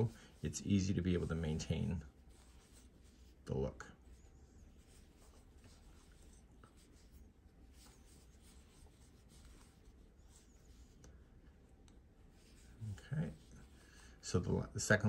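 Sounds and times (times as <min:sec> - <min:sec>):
yarn rubbing on crochet hook: 0:00.0 - 0:11.0, 0:12.2 - 0:14.1.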